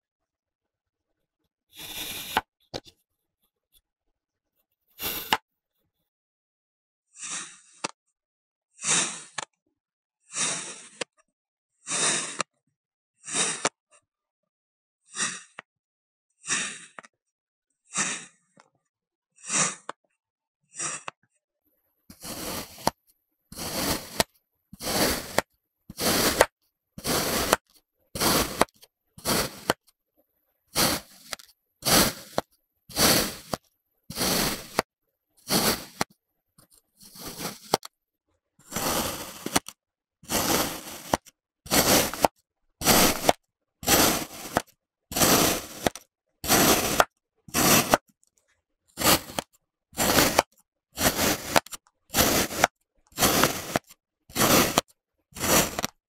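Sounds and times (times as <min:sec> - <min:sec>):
blade slicing kinetic sand: 0:01.7 - 0:02.9, 0:05.0 - 0:05.4, 0:07.2 - 0:08.0, 0:08.8 - 0:09.5, 0:10.3 - 0:11.2, 0:11.8 - 0:12.6, 0:13.2 - 0:13.8, 0:15.1 - 0:15.7, 0:16.4 - 0:17.1, 0:17.9 - 0:18.4, 0:19.4 - 0:20.0, 0:20.8 - 0:21.2, 0:22.1 - 0:30.0, 0:30.7 - 0:37.9, 0:38.6 - 0:48.1, 0:49.0 - 0:56.0.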